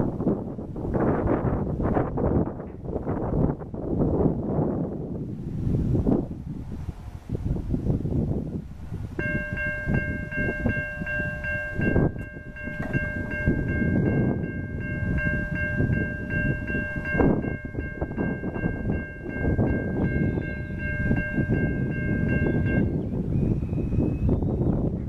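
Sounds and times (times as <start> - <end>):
train rumbling: 8.0 - 24.2
railroad warning bell ringing: 9.2 - 23.2.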